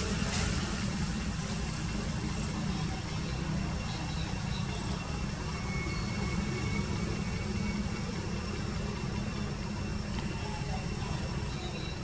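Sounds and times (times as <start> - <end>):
low rumbling noise: 0.0 - 12.0
faint high chirps: 2.8 - 9.4, 10.3 - 12.0.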